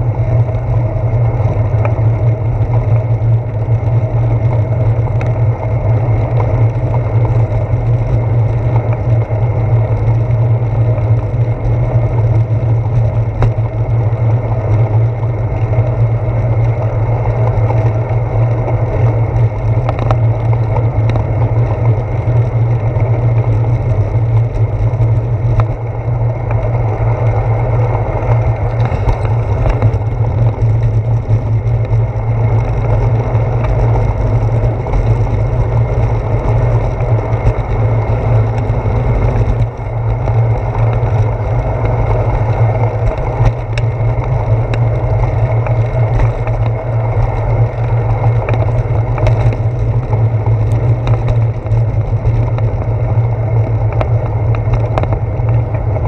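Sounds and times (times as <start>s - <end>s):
wind and road rumble: 0.0s - 56.0s.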